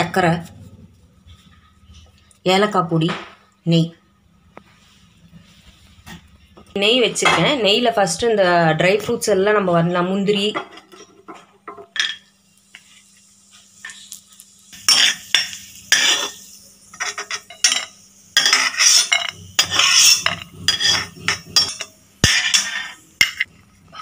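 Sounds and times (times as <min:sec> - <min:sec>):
metal spoon scraping metal pan: 0:14.8 - 0:23.5.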